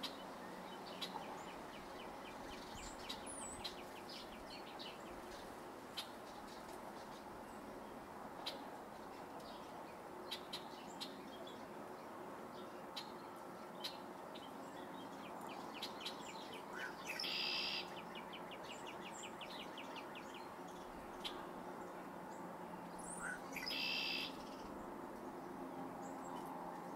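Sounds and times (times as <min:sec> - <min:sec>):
birds chirping: 0:12.6 - 0:24.8.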